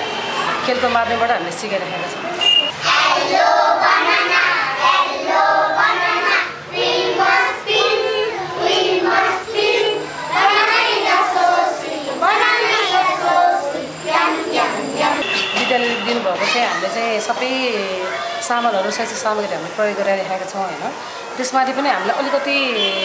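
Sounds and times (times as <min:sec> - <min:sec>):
children singing in chorus: 0:02.8 - 0:15.4.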